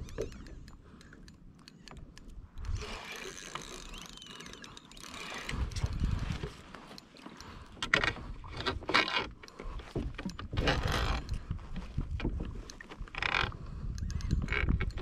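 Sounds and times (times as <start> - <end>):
wind on microphone: 5.4 - 6.6, 10.4 - 15.0.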